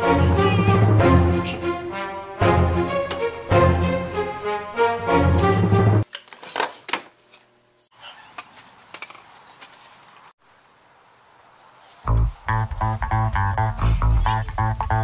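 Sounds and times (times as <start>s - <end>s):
background music: 0.0s - 6.0s
faint outdoor hiss: 7.5s - 15.0s
high-pitched insect trill: 8.0s - 15.0s.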